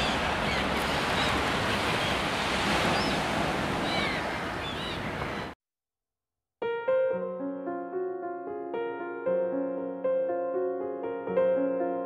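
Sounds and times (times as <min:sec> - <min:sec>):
high calls of seabirds: 0:00.0 - 0:05.6
surf washing: 0:00.0 - 0:05.6.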